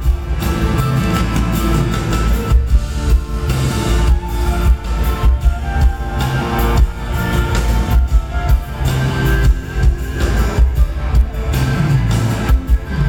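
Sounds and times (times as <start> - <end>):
bass guitar: 0.0 - 13.0
drum kit: 0.0 - 13.0.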